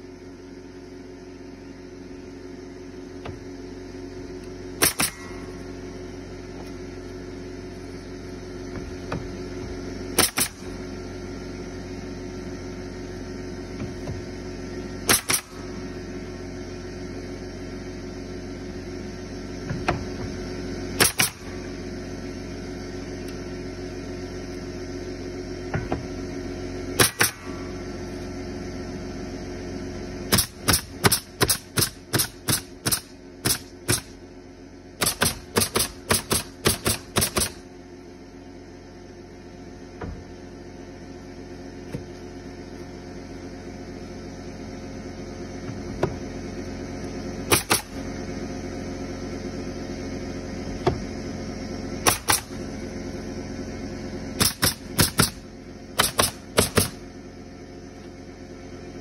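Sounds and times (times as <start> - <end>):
steady low hum: 0.0 - 59.0
nail gun firing into wood: 4.8 - 5.4, 10.2 - 10.7, 15.0 - 15.6, 21.0 - 21.5, 27.0 - 27.6, 30.3 - 34.2, 35.0 - 37.6, 47.5 - 48.0, 52.0 - 52.6, 54.4 - 55.4, 56.0 - 57.0.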